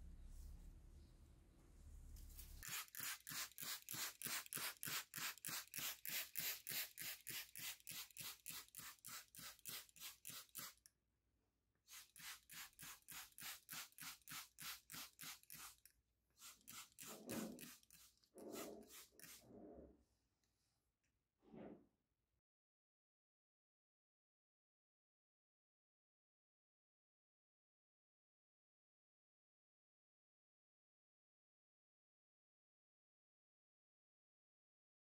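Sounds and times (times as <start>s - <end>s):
food rasped on hand grater: 2.6s - 10.8s.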